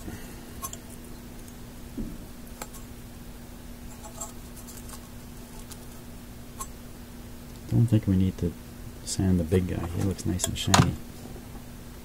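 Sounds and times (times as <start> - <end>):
steady low hum: 0.0 - 12.0
scratching of tube pins: 3.8 - 6.7.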